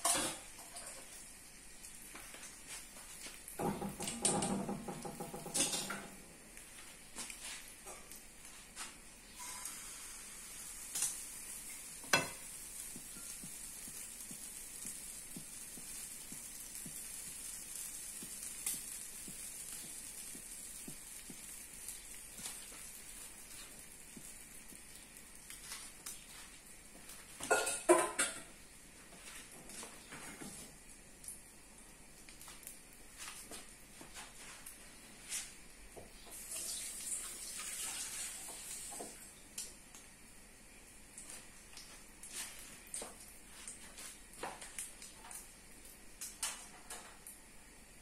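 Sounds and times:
cookware clatter: 0.0 - 1.0, 3.6 - 6.2, 27.4 - 28.5
batter sizzling in frying pan: 0.0 - 48.0.

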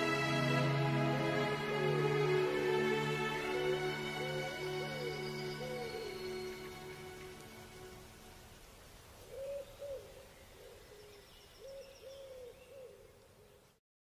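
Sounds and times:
music: 0.0 - 8.4.

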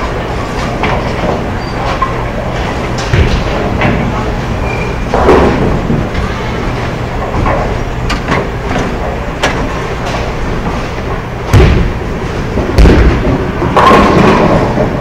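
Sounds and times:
bowling balls knocking: 11.4 - 15.0
heavy thuds: 11.5 - 14.4.

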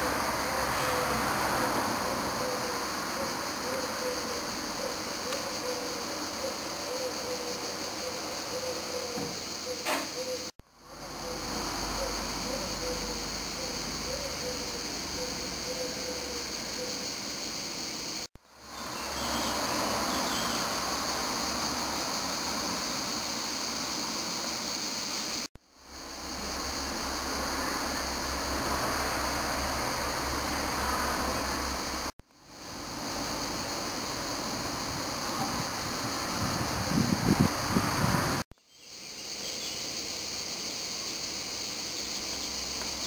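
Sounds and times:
background hiss: 0.0 - 43.0.

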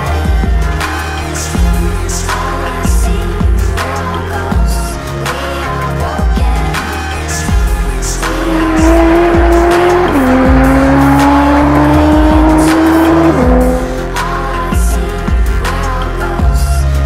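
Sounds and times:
background music with steady beat: 0.0 - 17.0
car engine accelerating hard: 8.2 - 14.4.

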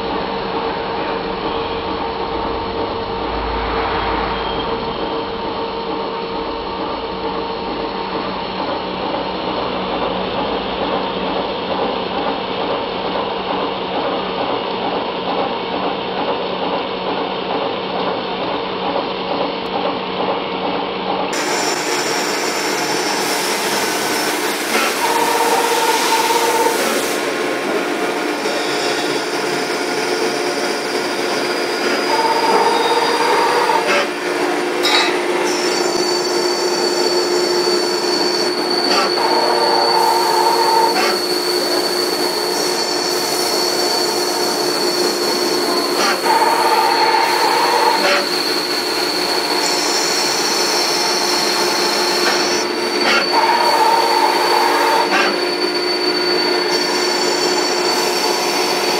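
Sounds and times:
lathe cutting thread: 21.4 - 58.9
machine tool humming: 21.4 - 58.9.

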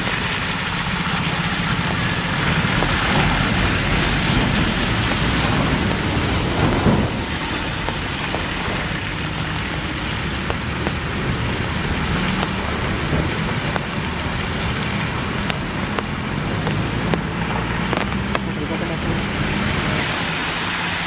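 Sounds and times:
bus diesel engine humming: 0.0 - 21.0
heavy rain on road: 0.0 - 21.0
sharp ticks: 15.4 - 18.8.

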